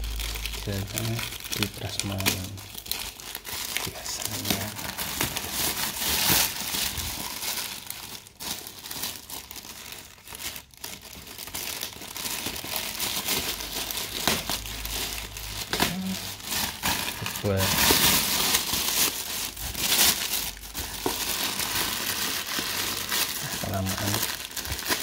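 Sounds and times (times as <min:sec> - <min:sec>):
plastic bag crinkling: 0:00.0 - 0:25.0.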